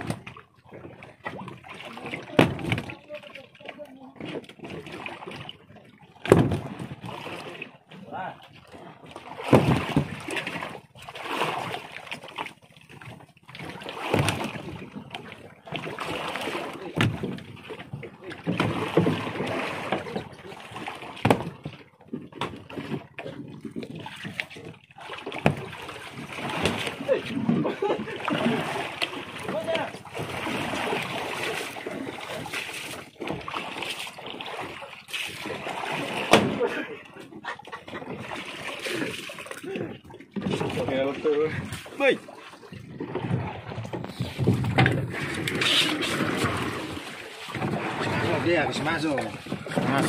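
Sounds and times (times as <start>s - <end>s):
boat thumps: 0.0s - 0.4s, 1.2s - 5.5s, 6.2s - 7.4s, 9.2s - 10.8s, 13.6s - 36.8s, 37.8s - 50.0s
water sloshing against boat hull: 0.0s - 50.0s
wind buffeting microphone: 42.8s - 45.6s.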